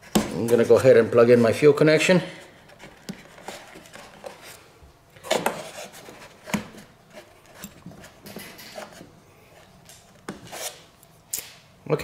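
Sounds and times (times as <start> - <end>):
rubbing and scraping: 2.4 - 4.6, 5.3 - 10.9.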